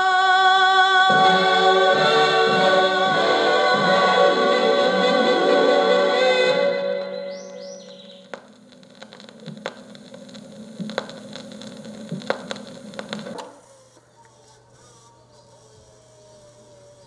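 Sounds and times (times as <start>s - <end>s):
low electrical hum and hiss: 1.1s - 17.0s
faint clicks and ticks: 7.8s - 14.4s.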